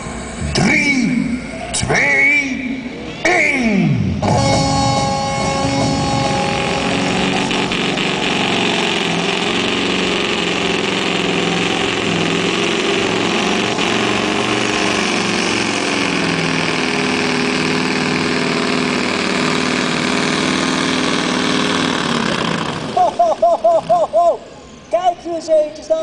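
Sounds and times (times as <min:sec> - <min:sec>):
diesel truck engine at full load: 0:00.0 - 0:25.0.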